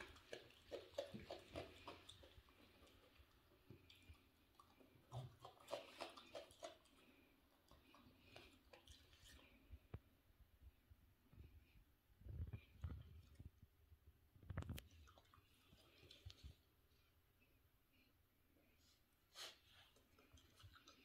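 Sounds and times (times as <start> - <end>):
raccoon chewing crunchy cabbage: 0.0 - 9.8, 19.6 - 21.0.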